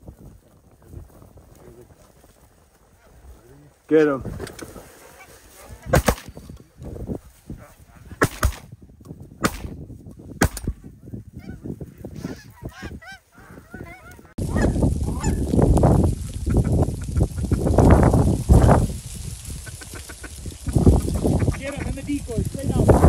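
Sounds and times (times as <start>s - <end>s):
geese gabbling: 4.7s - 6.0s, 11.3s - 15.5s, 16.2s - 17.9s, 19.5s - 22.3s
geese honking: 11.4s - 15.5s, 19.5s - 22.4s.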